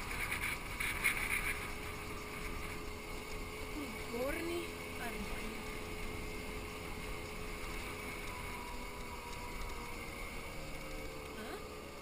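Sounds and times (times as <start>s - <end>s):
scooter engine droning: 0.0s - 12.0s.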